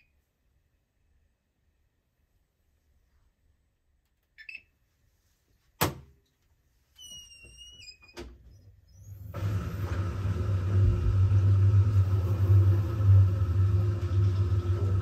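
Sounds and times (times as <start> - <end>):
low rumble: 9.7 - 15.0.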